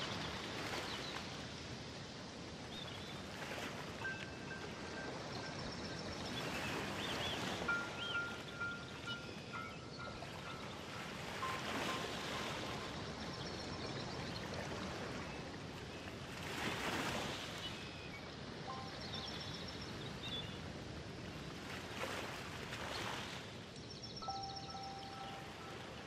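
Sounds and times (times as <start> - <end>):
faint high notes: 18.7 - 20.0, 24.2 - 26.0.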